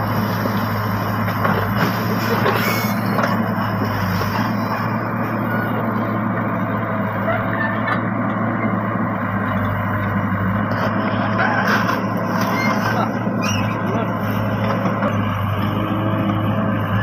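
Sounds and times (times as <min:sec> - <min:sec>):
excavator engine running: 0:00.0 - 0:17.0.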